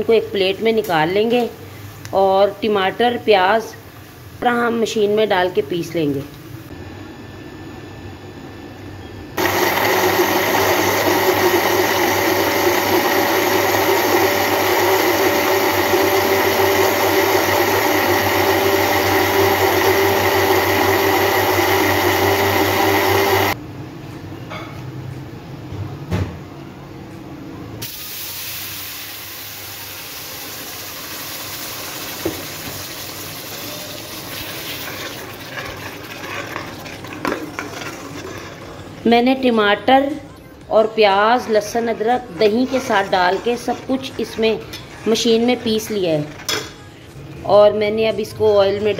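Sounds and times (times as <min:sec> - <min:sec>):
blender motor whine: 0:09.4 - 0:23.6.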